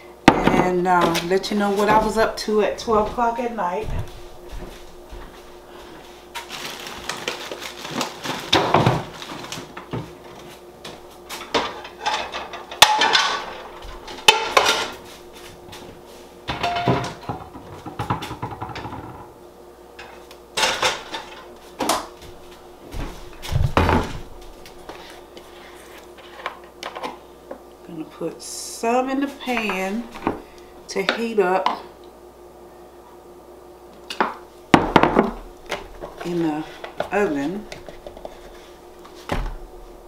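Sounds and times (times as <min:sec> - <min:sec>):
pots pans and dishes clattering: 0:11.4 - 0:15.0, 0:16.5 - 0:19.3, 0:20.0 - 0:21.5.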